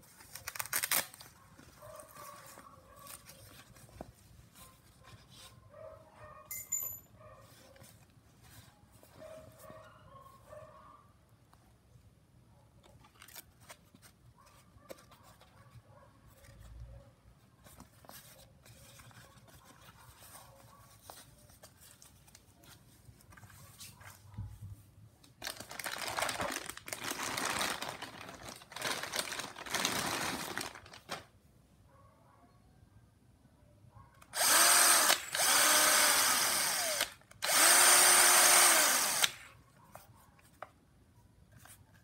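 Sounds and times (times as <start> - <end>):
plastic bag crinkling: 25.4 - 31.3.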